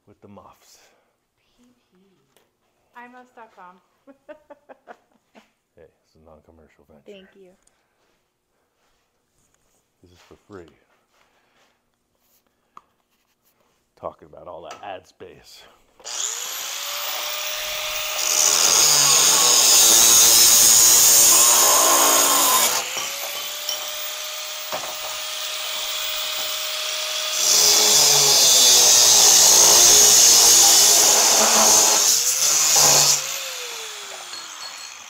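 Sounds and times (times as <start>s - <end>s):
angle grinder grinding steel: 16.1s - 35.0s.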